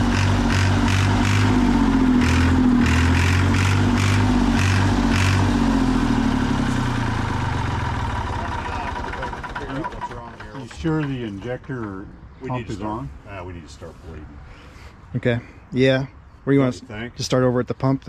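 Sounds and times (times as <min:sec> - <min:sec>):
diesel tractor engine firing: 0:00.0 - 0:12.0.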